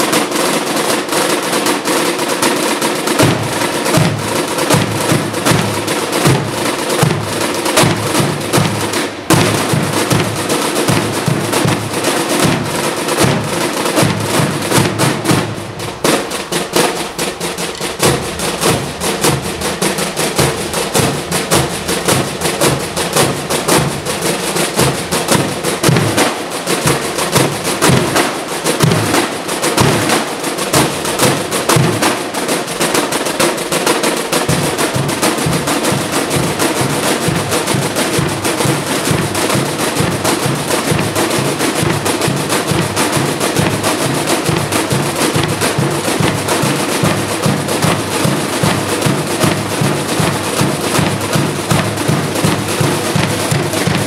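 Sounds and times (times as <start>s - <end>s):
military side drums beating: 0.0s - 54.0s
deeper drum strokes: 3.2s - 29.9s.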